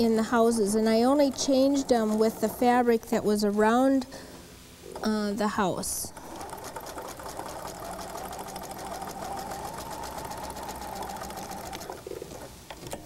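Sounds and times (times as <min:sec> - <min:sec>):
electric sewing machine running: 0:00.6 - 0:02.8, 0:06.2 - 0:12.5.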